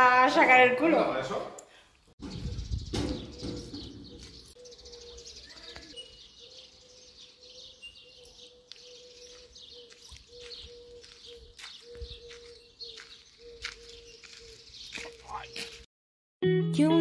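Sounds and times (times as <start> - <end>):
small birds chirping: 2.2 - 15.9.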